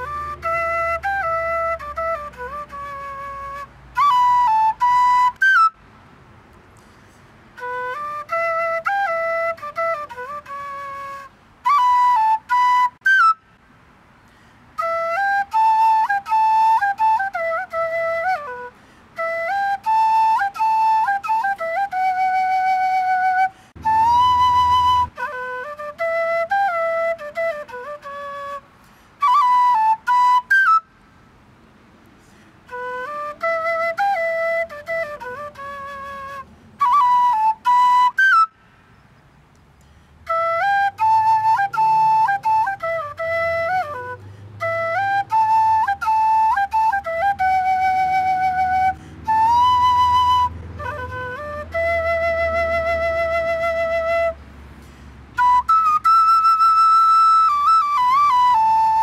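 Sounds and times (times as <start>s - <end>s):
end-blown flute melody: 0.0s - 5.8s, 7.6s - 13.5s, 14.8s - 30.9s, 32.6s - 38.6s, 40.2s - 54.6s, 55.3s - 59.0s.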